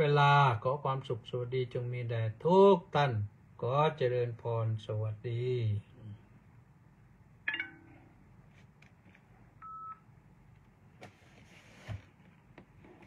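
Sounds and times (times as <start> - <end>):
electronic beep: 7.5 - 8.1.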